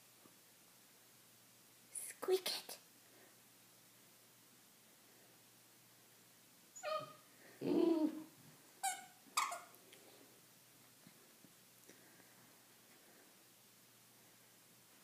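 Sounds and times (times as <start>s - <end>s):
squeaky dog toy squeaking: 6.8s - 7.2s, 8.8s - 9.7s.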